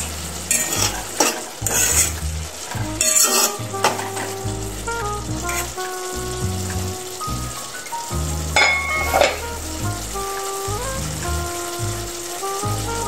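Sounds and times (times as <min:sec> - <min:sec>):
background music: 0:00.0 - 0:13.0
food sizzling in a pot: 0:00.0 - 0:13.0
spoon scraping metal pot: 0:03.0 - 0:04.0.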